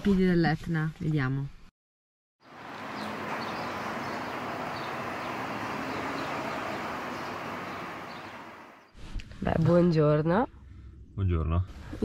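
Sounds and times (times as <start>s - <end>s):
distant traffic noise: 2.4s - 8.9s.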